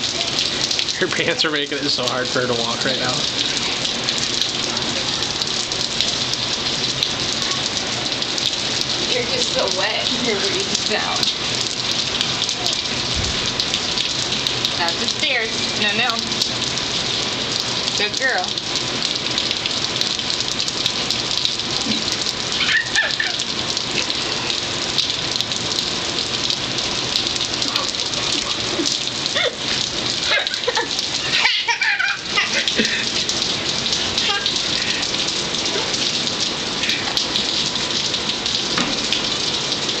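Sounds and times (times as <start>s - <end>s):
heavy rain on concrete: 0.0s - 40.0s
toddler babbling and squealing: 34.2s - 34.6s.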